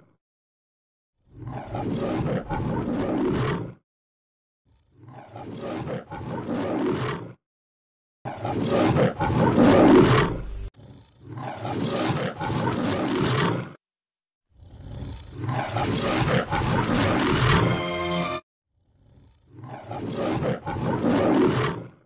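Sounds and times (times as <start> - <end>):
lion roar: 1.2 - 3.8, 4.7 - 7.4, 8.3 - 13.8, 14.6 - 17.8, 18.8 - 22.0.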